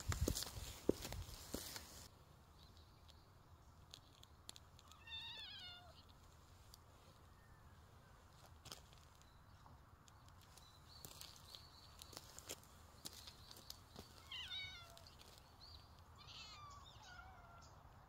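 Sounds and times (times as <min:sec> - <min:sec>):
cat meowing: 0:04.9 - 0:06.1, 0:14.2 - 0:15.1, 0:16.2 - 0:17.8.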